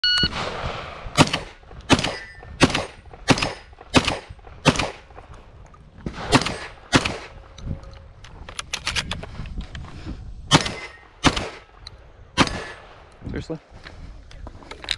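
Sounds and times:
electronic beep: 0.0s - 0.3s
shotgun shots: 0.3s - 5.2s, 6.0s - 7.4s, 10.5s - 11.7s, 12.4s - 13.0s.

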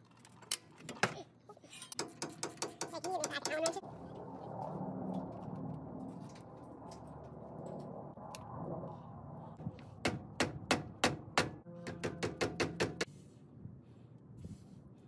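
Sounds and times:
handling tools and bolts: 0.0s - 3.6s
sharp ringing metallic knocks: 10.0s - 13.1s.

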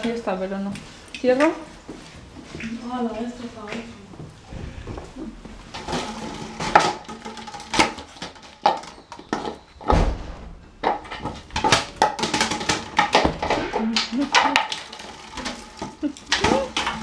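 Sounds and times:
dog claws clicking on tiles: 5.6s - 9.7s, 10.8s - 17.0s.

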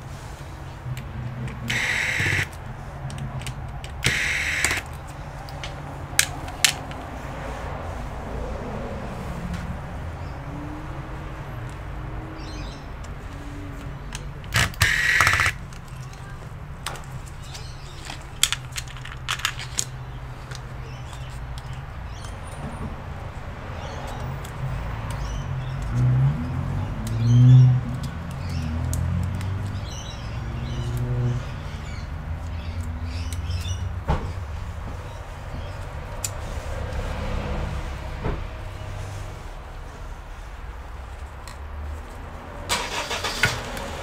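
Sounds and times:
electric screwdriver whirring: 1.7s - 2.5s, 4.0s - 4.9s, 14.6s - 15.6s
small parts clicking: 13.8s - 22.4s.

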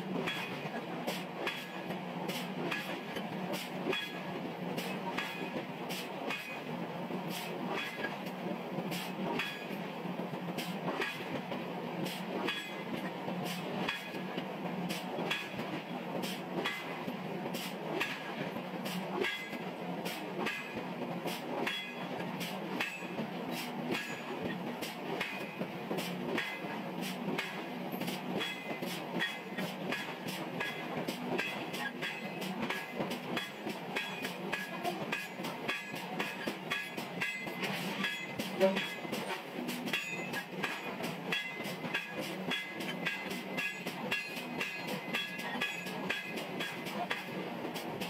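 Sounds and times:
sharp metallic clanks: 19.2s - 19.6s, 21.6s - 22.1s, 22.8s - 23.2s, 28.4s - 47.4s.

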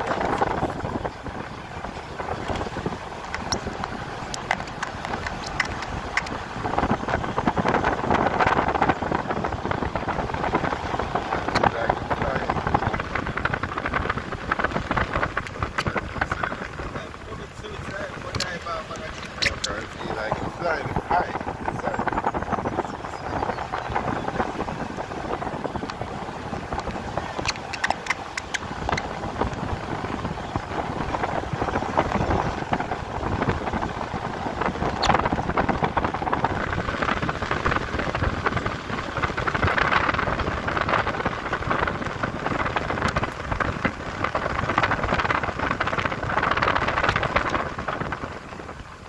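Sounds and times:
wind and road noise: 0.0s - 49.0s
sharp clicks: 2.4s - 6.4s, 26.7s - 29.6s.

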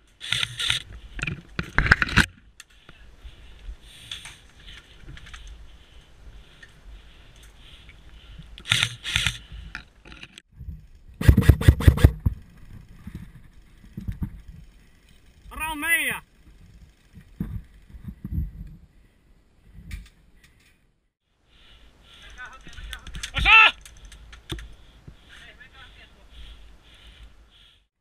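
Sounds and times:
rustle and scrape of gear: 0.0s - 19.2s.

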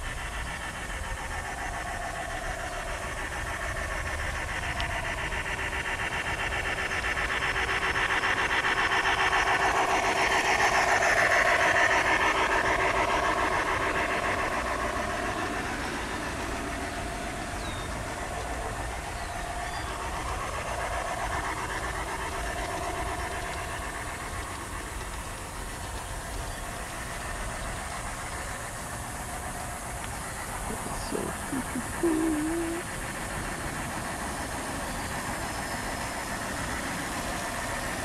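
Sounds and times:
model train clicking whir: 0.0s - 38.0s.

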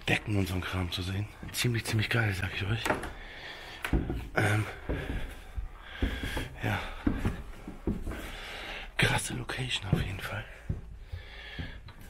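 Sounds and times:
man breathing heavily: 3.0s - 9.2s, 10.1s - 12.0s
dull knocks: 3.8s - 8.2s.

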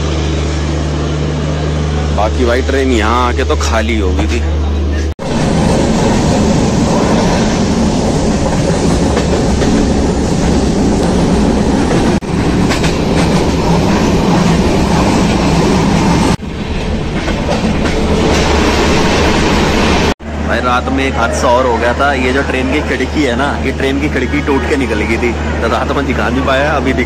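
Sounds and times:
train wheels on rails: 5.2s - 20.2s.

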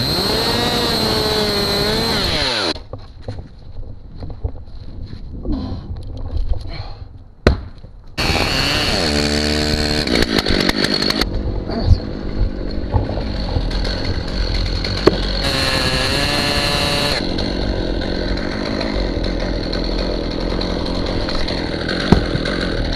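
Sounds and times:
chainsaw revving and idling: 0.0s - 2.8s, 8.2s - 11.3s, 12.1s - 22.9s.

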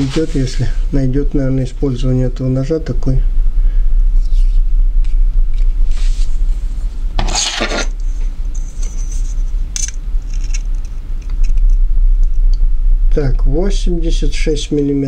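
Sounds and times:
steady low hum: 0.0s - 15.0s
steel ruler scraping knife blade: 7.2s - 8.0s.

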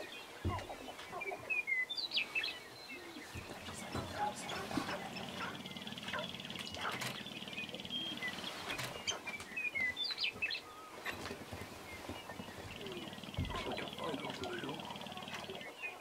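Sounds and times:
grouse chirps and clucks: 0.0s - 16.0s
grouse buzzy rattle: 3.2s - 9.9s, 11.0s - 16.0s.

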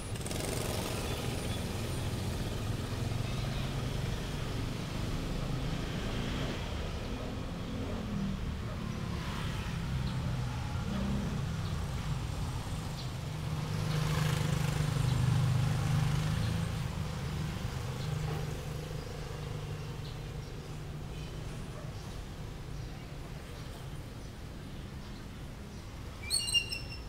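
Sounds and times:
vehicle engine passing: 0.0s - 20.4s.

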